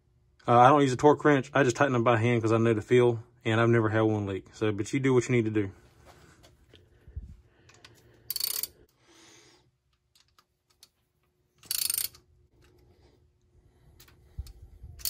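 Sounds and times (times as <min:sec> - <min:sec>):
socket ratchet clicking: 0:07.8 - 0:08.8, 0:11.6 - 0:12.3.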